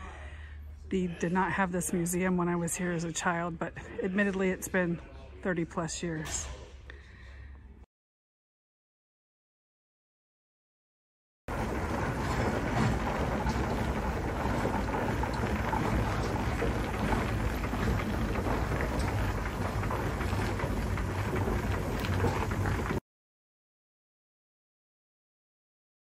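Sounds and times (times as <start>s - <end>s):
steam engine rumbling: 11.5s - 23.0s.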